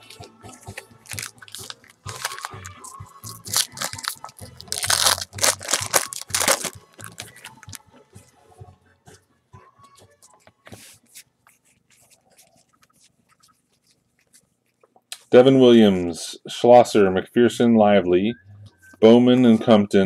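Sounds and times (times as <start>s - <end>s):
foil wrapper crinkling: 0.7s - 7.8s.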